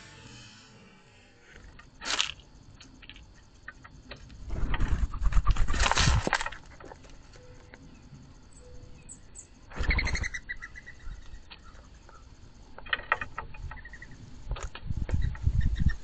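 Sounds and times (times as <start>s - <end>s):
dove wings flapping: 4.4s - 7.0s, 9.7s - 10.4s.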